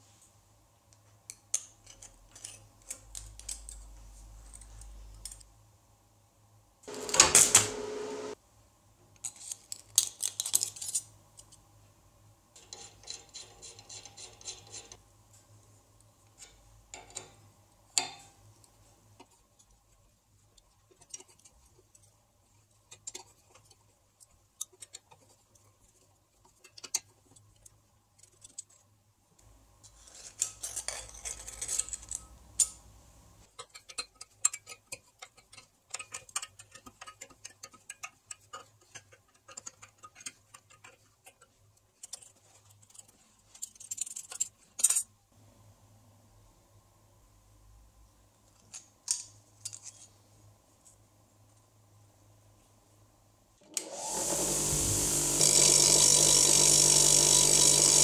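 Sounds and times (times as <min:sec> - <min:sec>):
small metal clicks: 0:01.3 - 0:05.5, 0:33.5 - 0:45.1.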